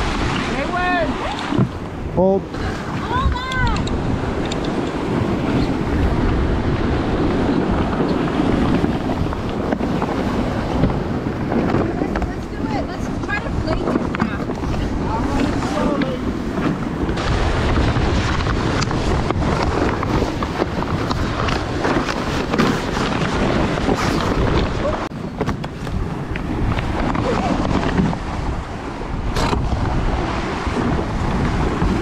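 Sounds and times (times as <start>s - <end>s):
water rushing along hull: 0.0s - 32.0s
wind buffeting microphone: 0.0s - 32.0s.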